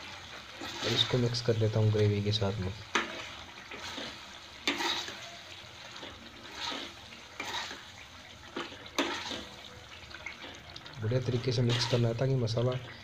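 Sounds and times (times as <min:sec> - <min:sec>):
gravy bubbling sizzle: 0:00.0 - 0:13.0
ladle clinking and scraping pan: 0:02.9 - 0:05.3, 0:05.9 - 0:07.9, 0:08.5 - 0:09.6, 0:11.6 - 0:12.2.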